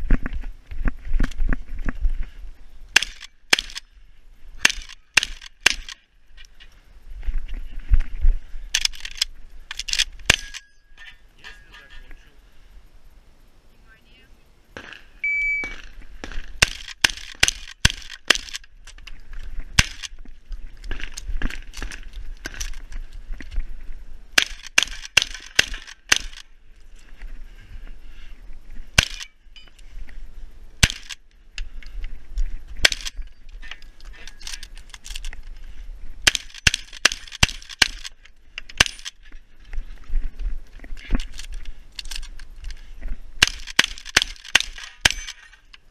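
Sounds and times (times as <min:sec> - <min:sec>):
shotgun shots: 0:19.8 - 0:20.1, 0:24.4 - 0:26.4, 0:29.0 - 0:29.3, 0:30.8 - 0:31.2, 0:36.2 - 0:38.1, 0:43.4 - 0:45.4.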